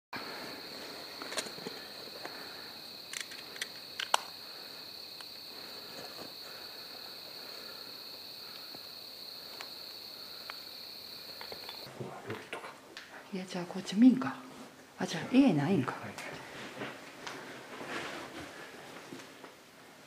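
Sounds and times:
insects trilling: 0:00.2 - 0:11.9.

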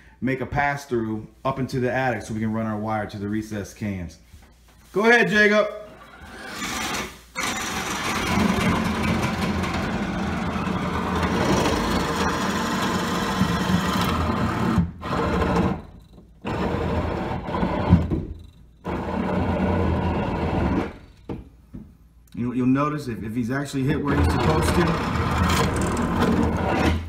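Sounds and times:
power drill boring through wood: 0:05.9 - 0:18.2, 0:18.8 - 0:21.2, 0:24.1 - 0:27.0.

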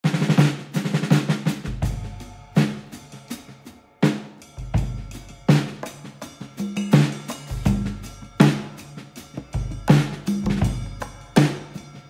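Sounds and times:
snare drum runs: 0:00.0 - 0:04.4.

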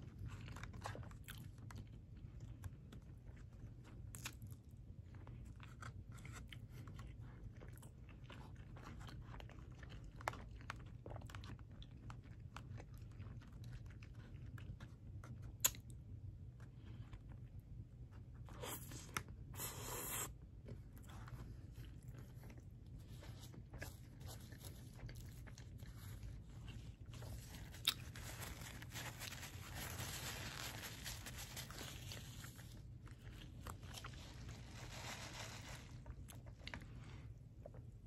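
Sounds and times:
chewing with wet mouth sounds: 0:00.0 - 0:30.4, 0:31.4 - 0:34.6, 0:36.0 - 0:38.0
paper napkin rustling: 0:27.6 - 0:32.7, 0:33.9 - 0:36.1.

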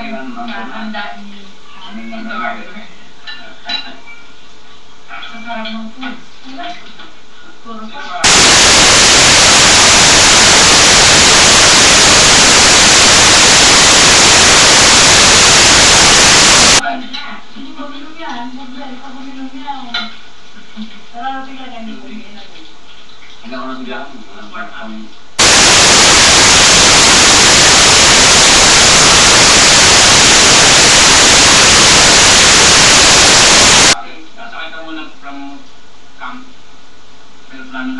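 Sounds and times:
loud static hiss: 0:08.1 - 0:16.9, 0:25.2 - 0:34.5.

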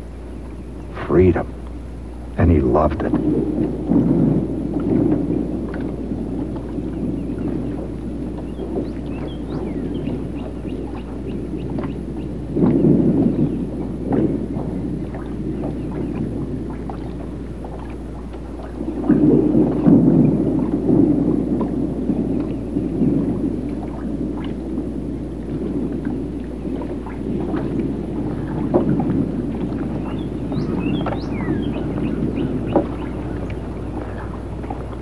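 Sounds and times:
birds twittering: 0:00.0 - 0:03.1, 0:06.7 - 0:13.9, 0:15.0 - 0:16.8, 0:29.8 - 0:34.5
water lapping: 0:00.0 - 0:35.0.

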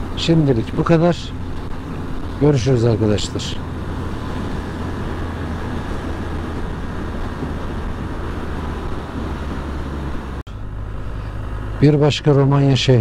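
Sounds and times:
motorcycle engine hum: 0:00.0 - 0:13.0
wind noise on microphone: 0:03.6 - 0:11.8.

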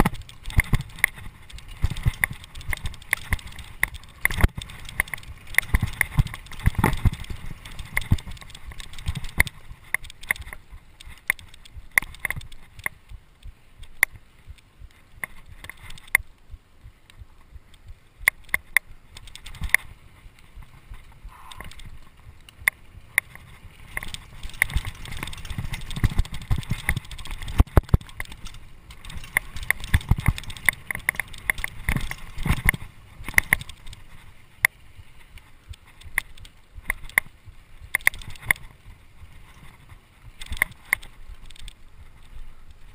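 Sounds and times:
tyres rumbling on dirt: 0:00.0 - 0:13.0, 0:19.0 - 0:37.2
mountain bike rattling over bumps: 0:00.0 - 0:16.5, 0:17.2 - 0:42.9.

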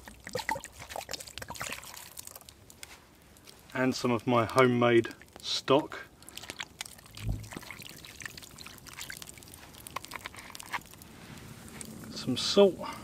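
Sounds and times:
liquid pouring and splashing: 0:00.0 - 0:03.7, 0:05.0 - 0:12.0
soft low thump: 0:07.2 - 0:07.5.

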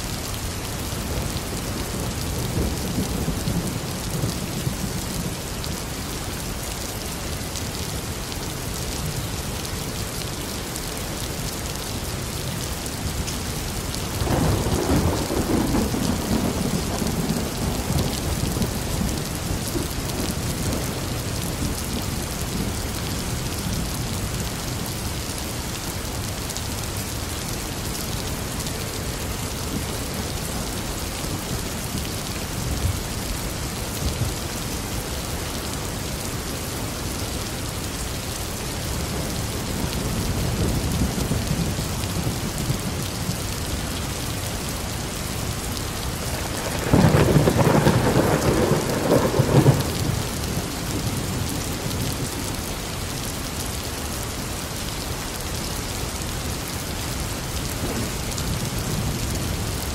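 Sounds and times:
steady rain falling: 0:00.0 - 0:59.9
thunderclap rumbling: 0:14.2 - 0:20.9, 0:46.2 - 0:52.0.

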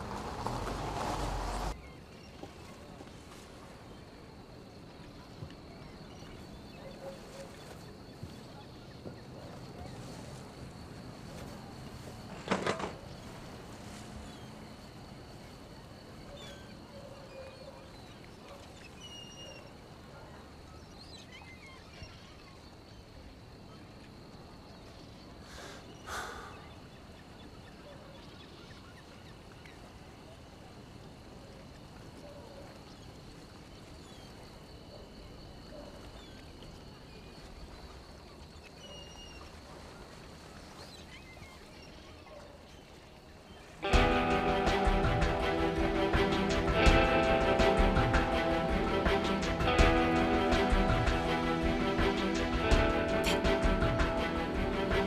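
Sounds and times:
faint bird chirps: 0:13.0 - 0:30.4.

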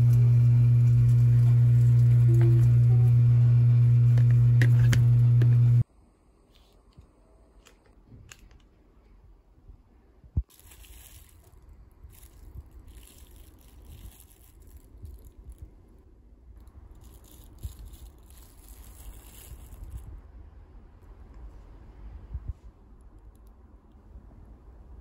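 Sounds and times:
soft rustling: 0:10.4 - 0:15.8.

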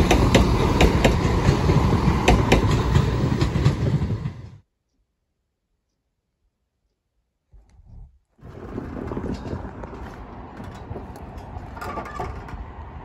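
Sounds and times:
passenger train rumbling past: 0:00.0 - 0:04.6, 0:08.4 - 0:13.0
train wheels clicking on rails: 0:00.0 - 0:04.6, 0:08.4 - 0:13.0.

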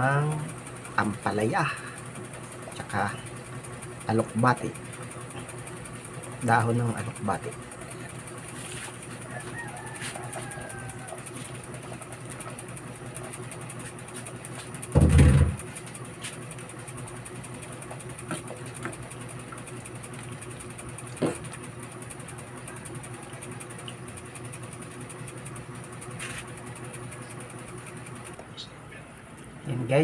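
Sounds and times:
low machine hum: 0:00.0 - 0:30.0
loud thump: 0:15.0 - 0:15.6.

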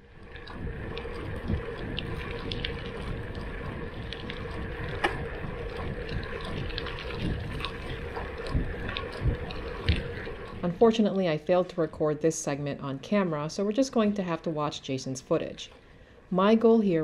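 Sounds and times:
wind on microphone: 0:00.0 - 0:10.9.

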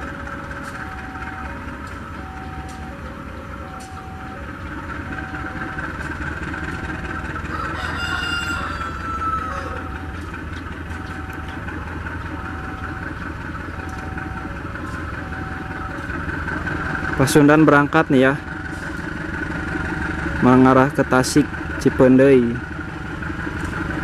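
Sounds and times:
locomotive engine droning: 0:00.0 - 0:24.0
rooster crowing: 0:07.4 - 0:10.1.

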